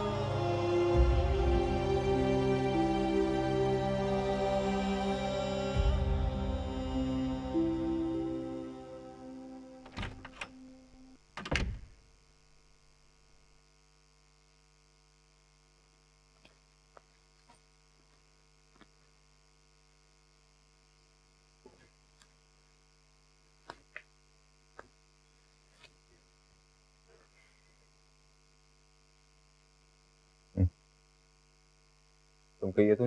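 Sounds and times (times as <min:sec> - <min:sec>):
music: 0:00.0 - 0:11.2
electrical mains hum: 0:00.0 - 0:33.0.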